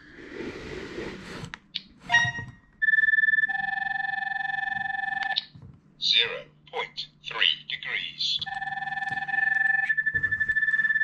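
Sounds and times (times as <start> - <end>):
electronic chirp: 2.1 - 5.4, 8.4 - 11.0.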